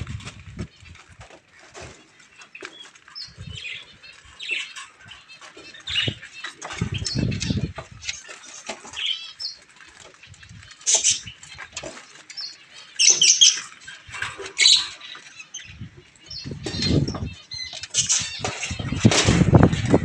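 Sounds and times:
bird wings flapping: 17.8 - 20.0.

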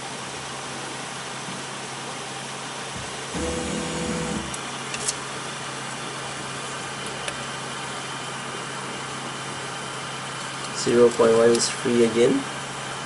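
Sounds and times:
printer steady hum: 2.8 - 13.0
stepper motors whirring: 3.4 - 4.6.

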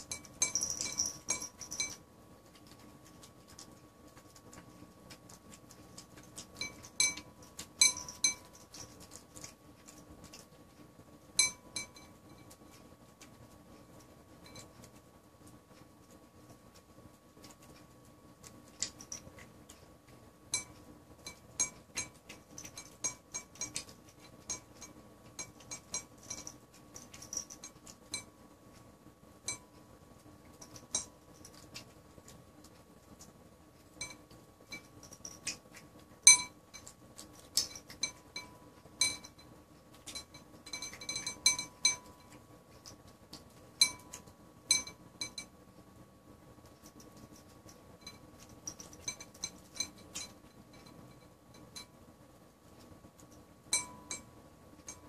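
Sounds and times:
clinks against ceramic bowl: 0.1 - 2.0, 6.6 - 8.8, 11.4 - 12.5, 20.6 - 26.6, 37.8 - 39.5, 40.1 - 42.4, 43.8 - 45.5, 53.8 - 55.0.

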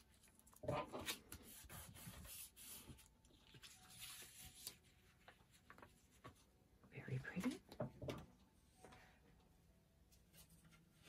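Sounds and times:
paper rustling and rubbing: 0.1 - 6.5.

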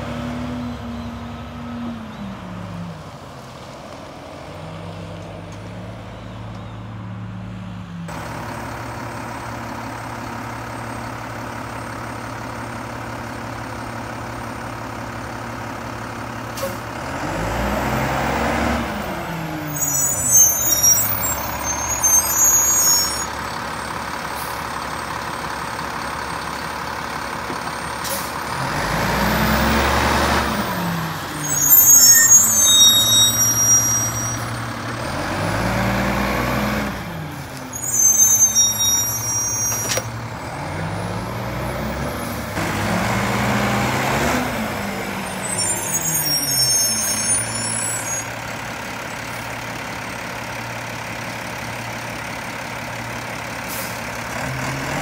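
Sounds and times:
truck diesel engine revving: 0.0 - 55.0
air brake hiss and squeal: 16.6 - 16.9, 19.7 - 23.4, 27.9 - 28.4, 31.4 - 34.6, 37.6 - 40.1, 45.2 - 48.4, 53.6 - 54.2.

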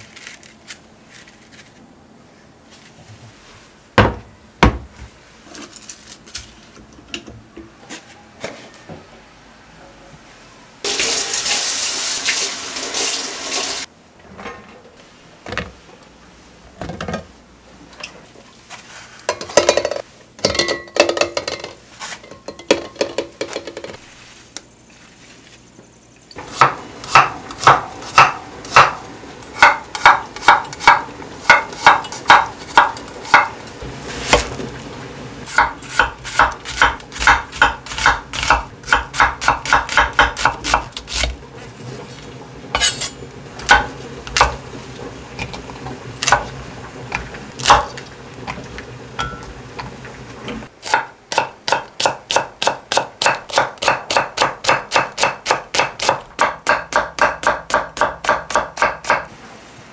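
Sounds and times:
vegetables clattering: 0.0 - 1.9, 5.4 - 6.8
knife chopping on wooden board: 26.5 - 29.0, 29.6 - 33.5, 35.6 - 41.3, 50.8 - 59.3.

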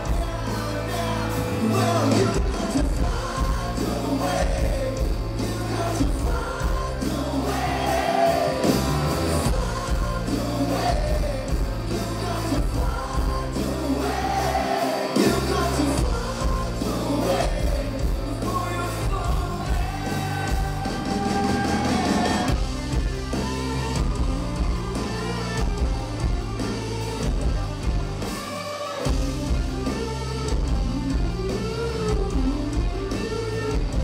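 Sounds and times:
lead singing: 0.0 - 26.3
bass: 0.0 - 34.0
drums: 0.0 - 34.0
electric guitars: 0.0 - 34.0.

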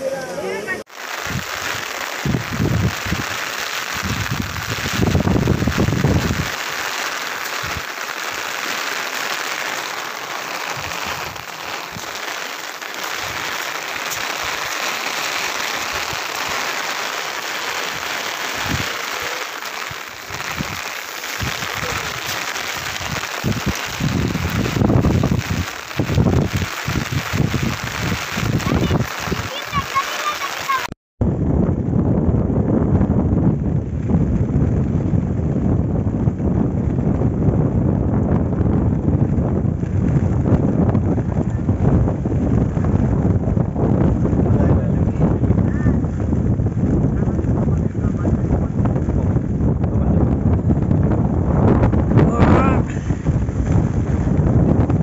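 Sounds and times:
heavy rain hissing: 0.0 - 31.0, 51.9 - 55.0
low rumbles: 1.2 - 29.5, 31.2 - 55.0.

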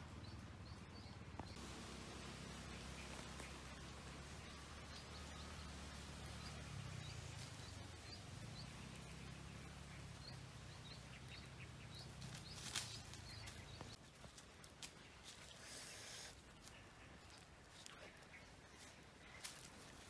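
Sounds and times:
low steady rumble: 0.0 - 14.0
bird chirping: 0.0 - 20.0.

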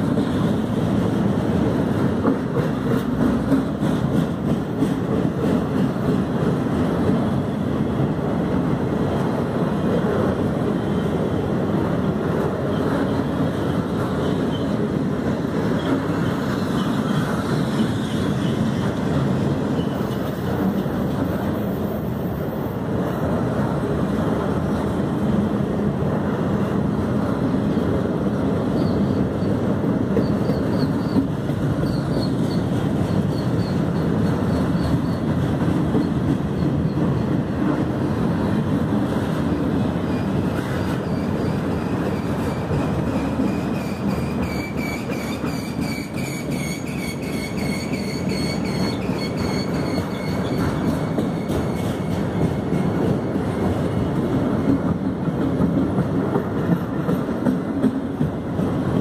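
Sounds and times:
train wheels rumbling on track: 0.0 - 59.0
high wheel squeals: 28.7 - 29.6, 30.2 - 35.3, 40.0 - 53.0.

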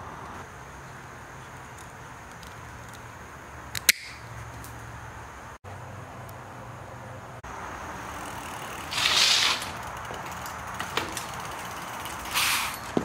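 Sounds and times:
bicycle brake hissing: 7.9 - 13.0.

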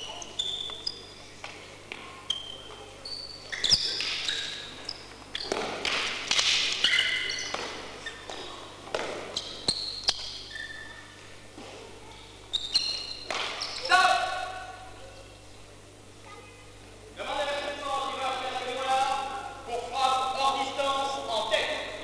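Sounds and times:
sneakers squeaking on gym floor: 0.0 - 11.2, 12.4 - 14.0.

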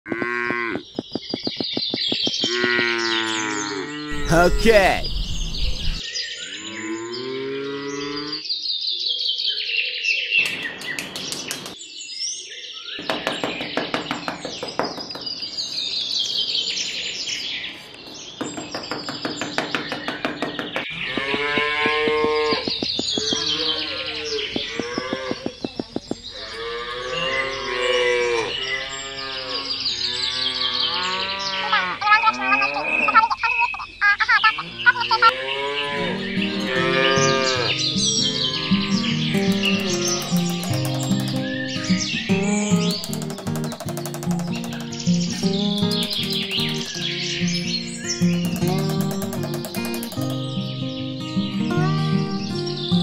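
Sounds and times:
cattle mooing: 35.3 - 37.8
fast clicking rattle: 39.4 - 41.6, 42.8 - 47.2, 48.3 - 50.6.

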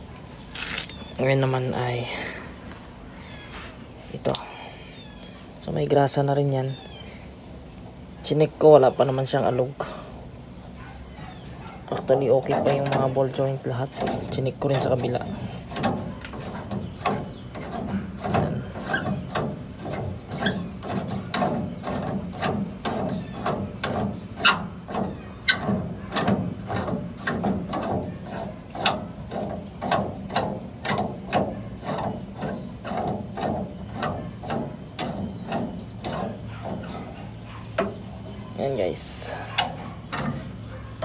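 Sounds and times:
metal rubbing: 10.5 - 41.0.

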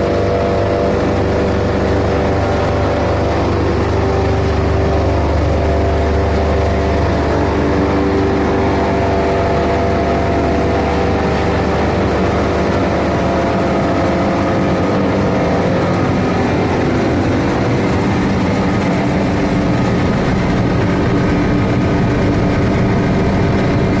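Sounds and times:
cable granulator machine drone: 0.0 - 24.0.

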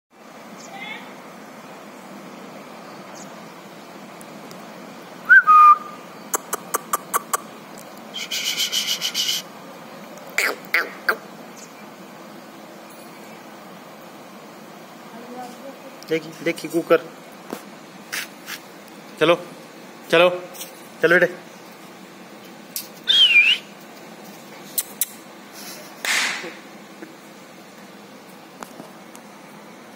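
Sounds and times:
person whistling: 5.3 - 6.0, 23.1 - 23.6
short hiss: 8.1 - 9.5, 17.5 - 18.7.

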